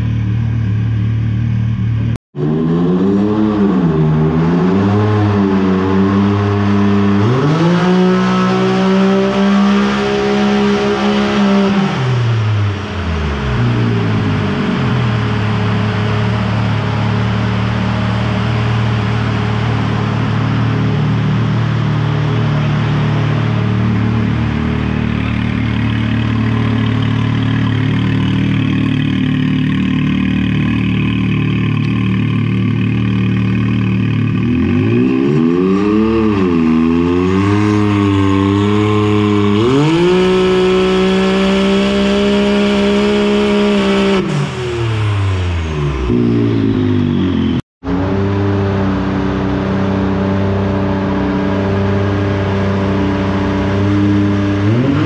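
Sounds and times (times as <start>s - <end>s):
engine running on a dyno: 0.0s - 55.0s.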